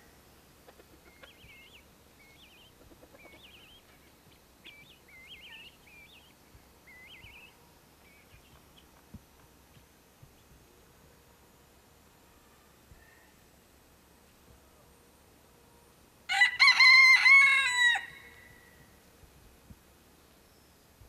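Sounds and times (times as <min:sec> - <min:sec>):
songbird singing faintly: 0:00.0 - 0:16.4, 0:18.1 - 0:21.0
steady outdoor hiss: 0:00.0 - 0:21.0.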